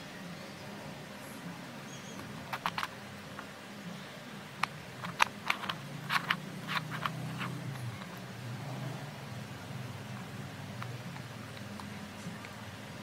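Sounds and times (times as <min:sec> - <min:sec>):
puzzle cube clicking: 0:02.2 - 0:02.9, 0:04.6 - 0:08.2.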